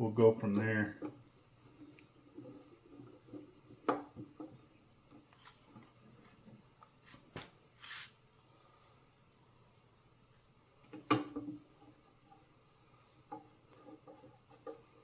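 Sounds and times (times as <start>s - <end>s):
short scrape: 7.8s - 8.2s.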